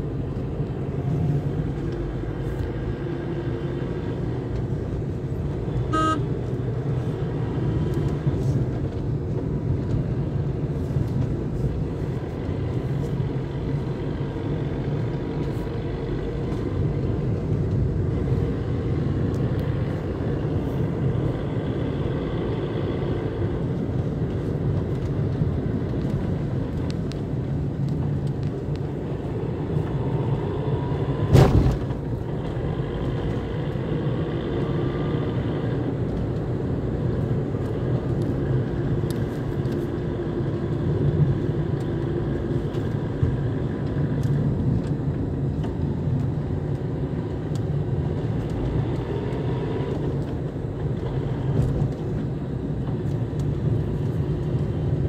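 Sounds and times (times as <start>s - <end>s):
vehicle engine and tyre noise: 0.0s - 55.0s
car horn toot: 5.9s - 6.4s.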